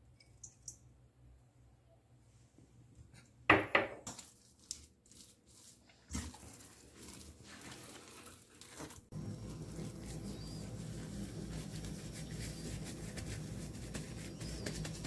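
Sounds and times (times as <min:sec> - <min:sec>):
squishing of kneaded mixture: 0:04.1 - 0:15.0
plastic rustling: 0:04.3 - 0:15.0.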